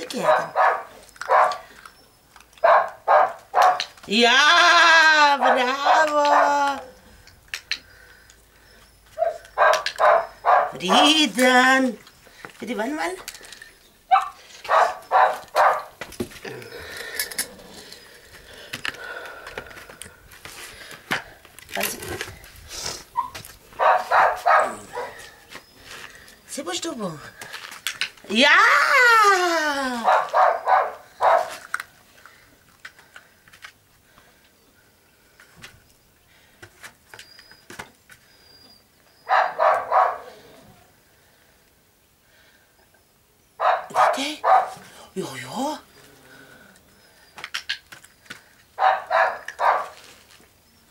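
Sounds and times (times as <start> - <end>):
puppy barking: 0.2 - 1.7, 2.6 - 4.0, 5.4 - 7.0, 9.2 - 11.2, 14.1 - 16.0, 23.2 - 25.3, 30.0 - 31.6, 39.2 - 40.4, 43.6 - 44.8, 48.8 - 50.0.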